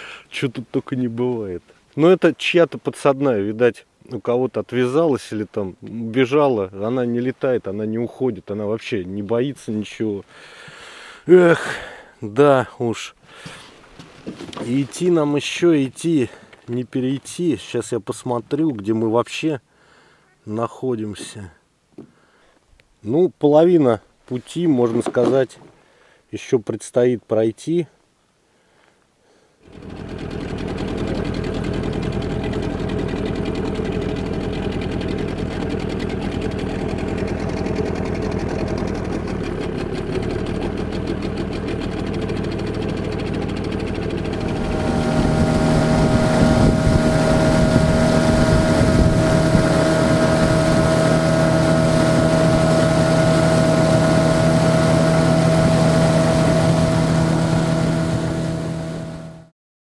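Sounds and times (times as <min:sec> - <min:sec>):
motorboat engine running: 0:29.7 - 0:59.5.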